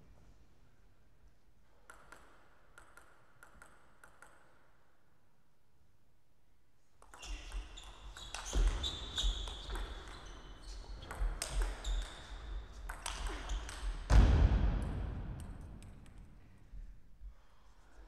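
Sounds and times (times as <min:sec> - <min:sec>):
table tennis ball clicking: 0:01.9 - 0:04.7
loud thump: 0:14.1 - 0:15.4.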